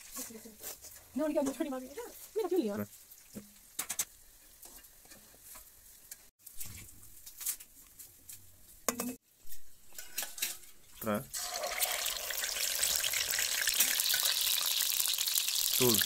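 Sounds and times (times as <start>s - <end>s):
metal utensils scraping a pan: 9.0s - 11.0s
ghee sizzling faintly: 9.3s - 16.0s.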